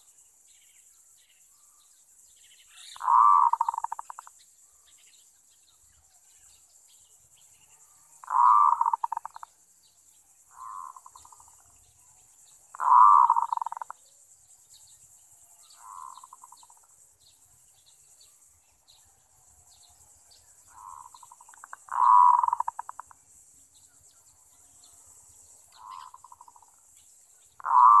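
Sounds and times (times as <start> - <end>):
high insect hiss: 0.0 - 28.0
dove cooing: 3.0 - 4.2, 8.2 - 9.4, 12.7 - 13.9, 15.8 - 16.7, 20.7 - 23.0, 25.8 - 26.6, 27.6 - 28.0.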